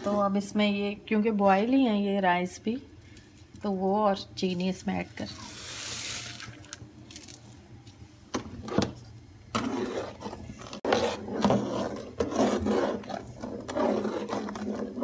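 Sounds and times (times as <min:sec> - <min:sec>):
metal spatula scraping a pot: 0:09.6 - 0:15.0.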